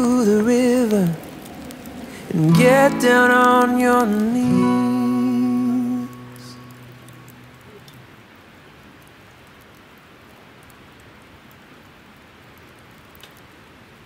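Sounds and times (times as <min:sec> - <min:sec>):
campfire embers hissing: 0:00.0 - 0:11.7
faint ticks: 0:12.6 - 0:13.5.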